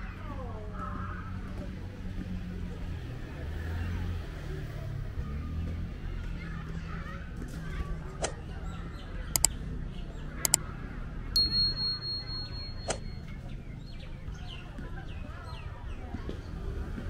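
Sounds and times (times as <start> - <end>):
murmur of voices: 0.0 - 17.0
sharp clicks: 9.3 - 9.6, 10.4 - 10.6
high steady tone: 11.4 - 13.3.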